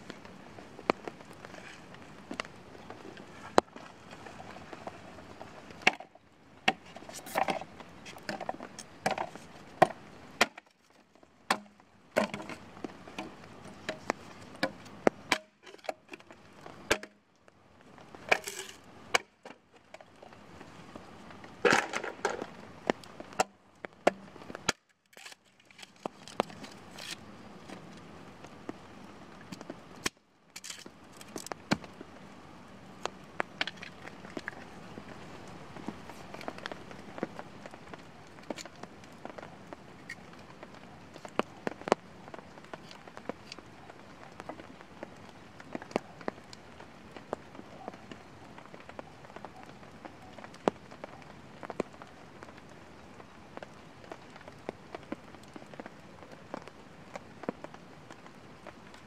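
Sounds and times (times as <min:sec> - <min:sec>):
bamboo cracking as it splits: 0:06.7 - 0:12.6, 0:13.9 - 0:17.2, 0:24.1 - 0:27.2, 0:29.5 - 0:31.9
axe chopping bamboo: 0:09.8 - 0:10.7, 0:11.5 - 0:12.5.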